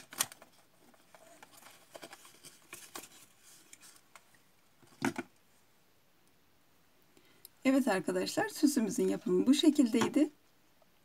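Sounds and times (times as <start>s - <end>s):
paper rustling and crinkling: 0.0s - 5.2s.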